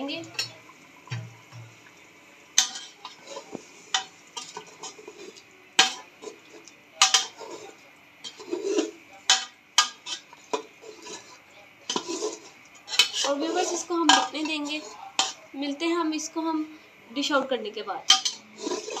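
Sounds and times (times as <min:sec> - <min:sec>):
soft stirring: 0:00.0 - 0:16.4, 0:18.1 - 0:19.0
metal spoon clanking against pot: 0:00.3 - 0:01.3, 0:02.6 - 0:06.1, 0:07.0 - 0:15.5, 0:18.1 - 0:19.0.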